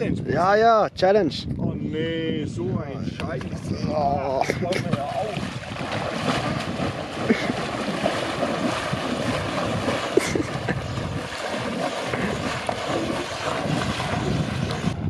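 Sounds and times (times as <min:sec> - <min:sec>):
water sloshing around wading legs: 0:04.9 - 0:15.0.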